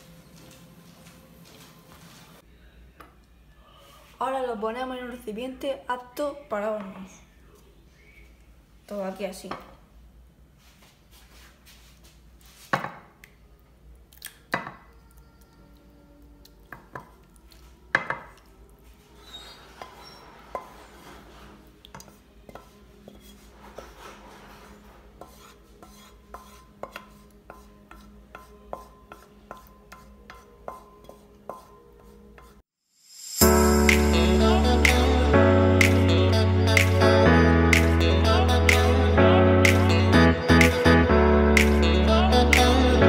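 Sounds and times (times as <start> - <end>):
spatula scraping frying pan: 19.2 - 21.7, 22.5 - 32.6.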